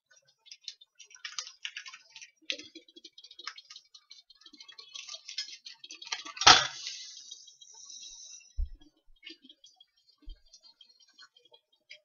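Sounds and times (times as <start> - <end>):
hiss: 6.6 - 8.5.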